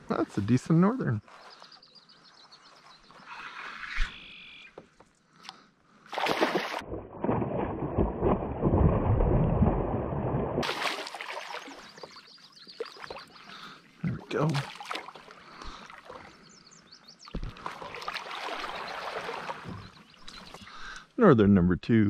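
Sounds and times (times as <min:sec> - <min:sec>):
fish splashing in water: 0:06.1 - 0:13.6, 0:14.5 - 0:16.3, 0:17.4 - 0:20.4.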